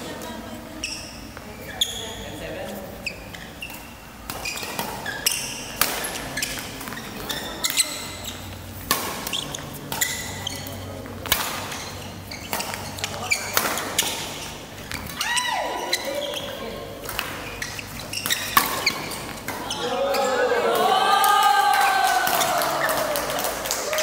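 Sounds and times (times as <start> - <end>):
shoes squeaking on court floor: 0.7 - 20.4
rackets hitting shuttlecock: 3.7 - 8.2, 8.8 - 14.3, 17.0 - 20.8, 21.8 - 23.8.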